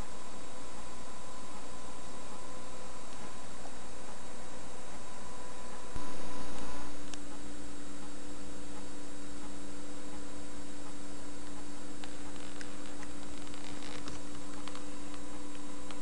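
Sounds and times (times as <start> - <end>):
electrical mains hum: 0.0 - 16.0.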